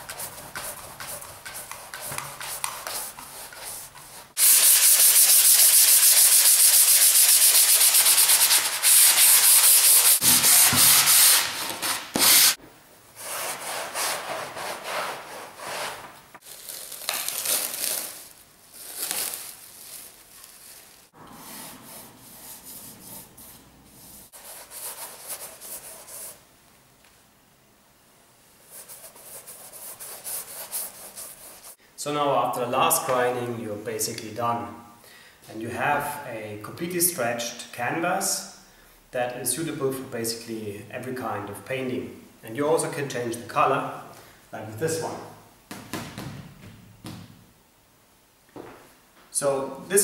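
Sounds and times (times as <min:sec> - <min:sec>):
brush spreading primer: 0:00.0 - 0:12.6, 0:18.8 - 0:26.4, 0:28.6 - 0:31.8
sandpaper rubbing on canvas: 0:00.0 - 0:12.6, 0:13.2 - 0:16.0, 0:21.4 - 0:26.4, 0:28.7 - 0:31.8.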